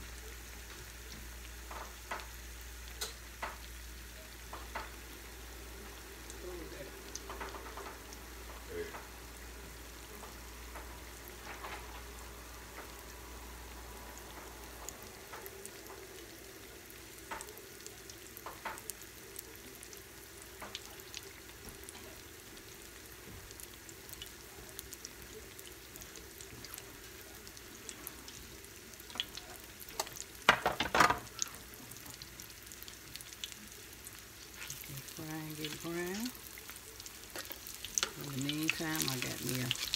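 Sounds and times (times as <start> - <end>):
deep-frying sizzle with pops: 0.0 - 39.9.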